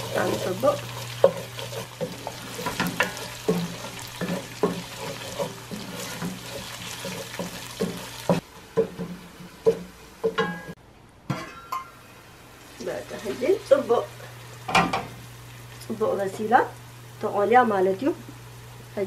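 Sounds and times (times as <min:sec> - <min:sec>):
spoon scraping pot: 0:00.0 - 0:08.4
light sizzle of frying: 0:00.0 - 0:19.0.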